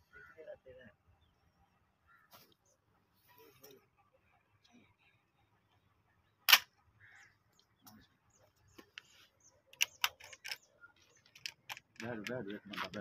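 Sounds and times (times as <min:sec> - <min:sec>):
sharp clicks: 0:09.7 - 0:13.0.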